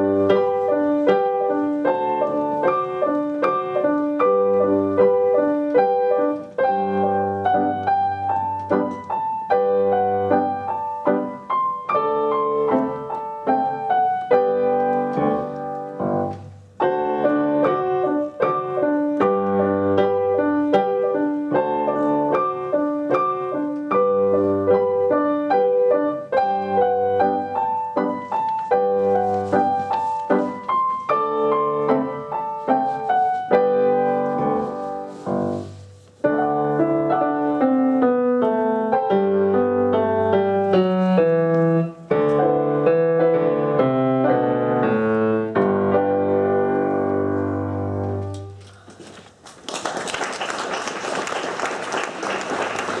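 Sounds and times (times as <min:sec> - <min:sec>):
piano duet: 0:00.0 - 0:53.0
applause: 0:48.8 - 0:53.0.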